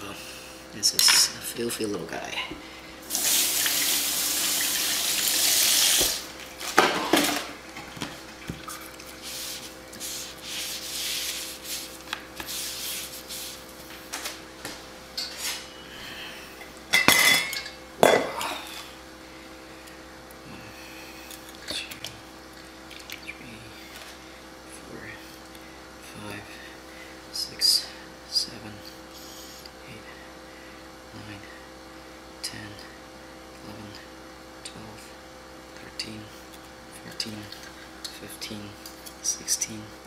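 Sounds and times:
kitchen tap running: 3.0s - 6.4s.

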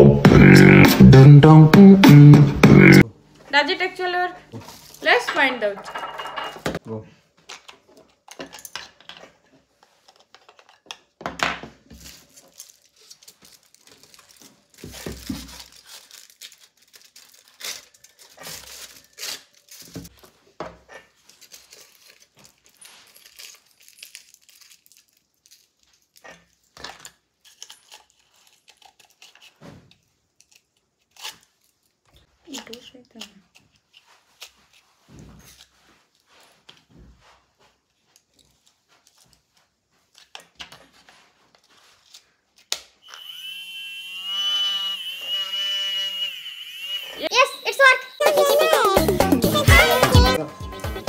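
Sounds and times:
plastic film crinkling and tearing: 11.9s - 20.2s, 21.1s - 32.0s.

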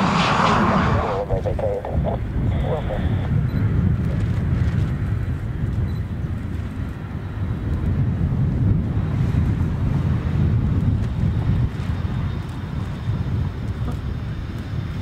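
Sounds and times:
aircraft engine rumble: 0.0s - 15.0s
wind on microphone: 0.0s - 15.0s.

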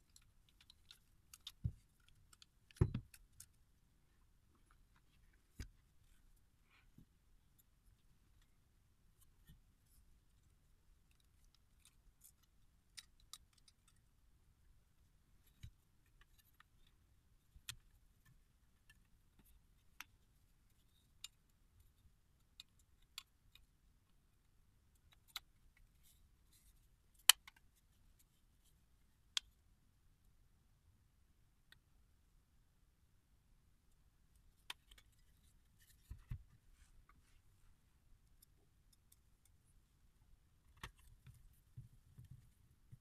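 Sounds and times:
small metal clicks and taps: 0.0s - 3.6s, 11.0s - 14.1s, 15.4s - 24.2s, 34.6s - 36.5s.

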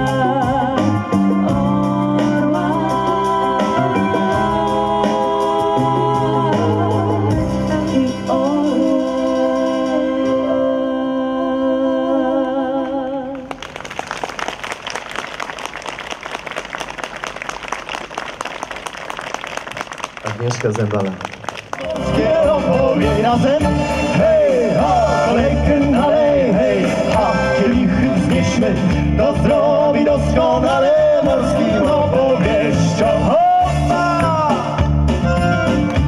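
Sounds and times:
keyboard accompaniment: 0.0s - 12.7s, 20.2s - 36.0s
vocal ensemble singing: 0.0s - 13.5s, 21.8s - 35.5s
audience applause: 13.5s - 22.3s.

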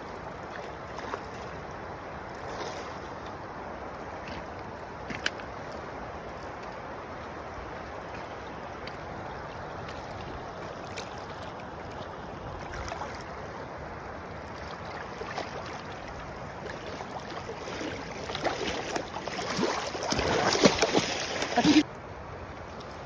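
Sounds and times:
river rushing over gravel: 0.0s - 23.0s
water splashing: 8.1s - 13.7s, 14.3s - 21.9s.

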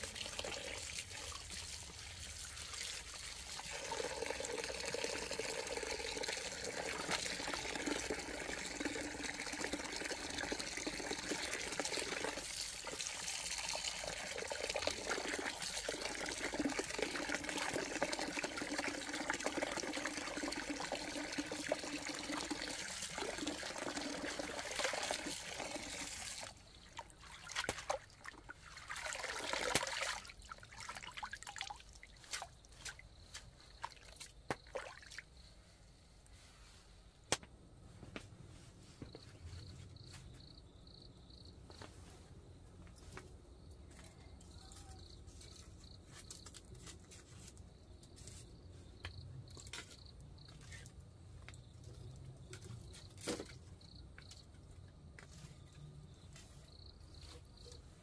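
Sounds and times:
water pouring into container: 0.0s - 32.4s, 33.8s - 35.2s
water drips: 0.0s - 35.3s.

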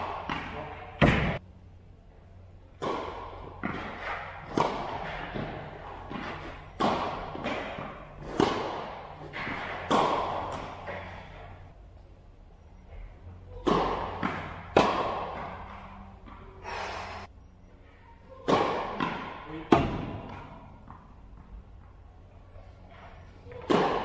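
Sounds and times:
tennis ball pocks echoing: 0.0s - 1.4s, 2.7s - 11.7s, 13.4s - 16.6s, 18.3s - 22.0s.

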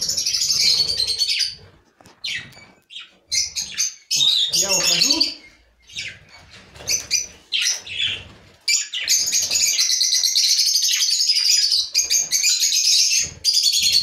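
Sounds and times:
budgerigars chirping and chattering: 0.0s - 14.0s.

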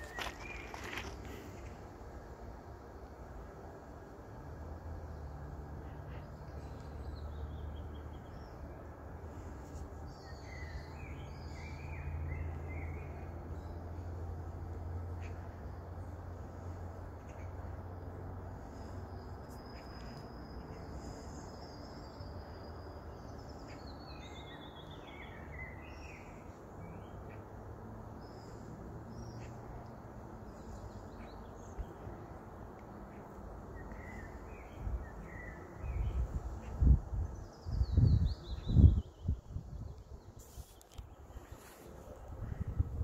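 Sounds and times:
birds singing: 10.1s - 14.1s
wind buffeting microphone: 42.3s - 43.0s.

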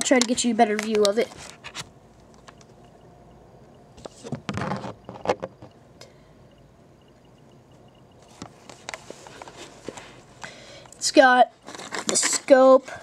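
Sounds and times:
sharp plastic clicks: 0.0s - 1.2s.

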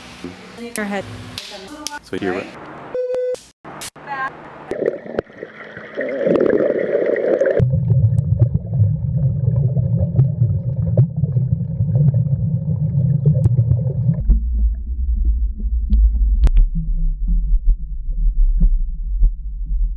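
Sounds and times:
deep gurgling rumbling drone: 4.7s - 19.9s.

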